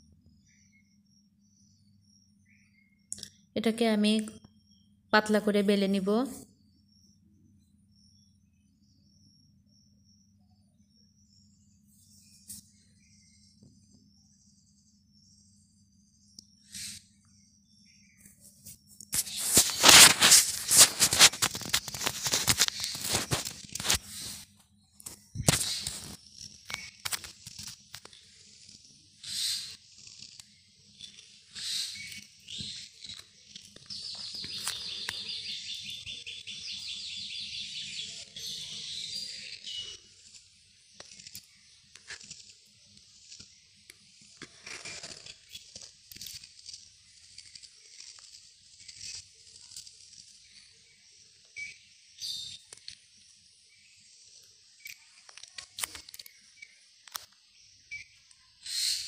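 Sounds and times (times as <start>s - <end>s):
hand rubbing dough: 18.5s - 24.5s.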